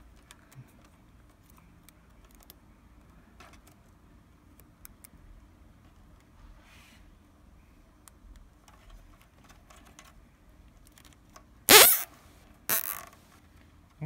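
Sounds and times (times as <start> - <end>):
zip tie zipping: 11.7 - 12.1, 12.7 - 13.0.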